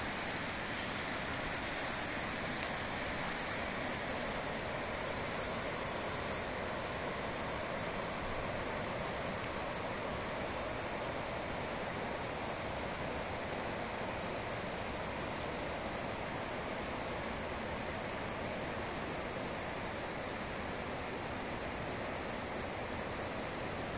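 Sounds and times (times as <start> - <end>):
high insect trill: 0.0 - 11.6, 13.2 - 15.5, 16.4 - 23.9
river rushing over rocks: 0.0 - 13.6.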